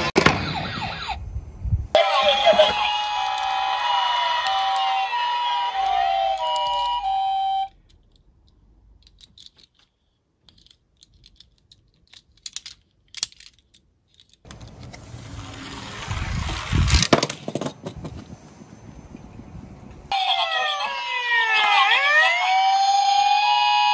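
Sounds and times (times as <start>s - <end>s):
electronic siren tones: 2.0s - 7.7s, 20.1s - 23.9s
metallic clicks of toy car handled: 7.8s - 14.6s
toy car clattering down wooden slope: 16.8s - 18.2s.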